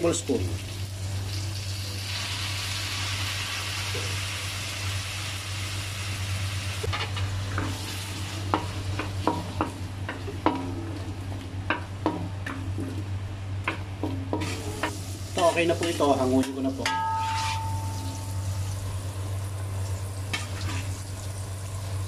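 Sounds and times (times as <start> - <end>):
vegetables sizzling in oil: 0.0 - 12.6, 14.0 - 22.0
wooden spatula scraping a pan: 14.3 - 16.1, 17.2 - 17.7.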